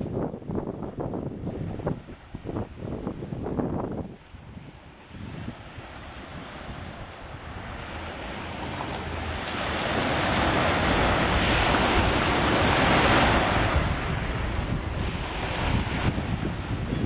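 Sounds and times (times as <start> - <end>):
waves breaking on pebble beach: 4.6 - 17.0.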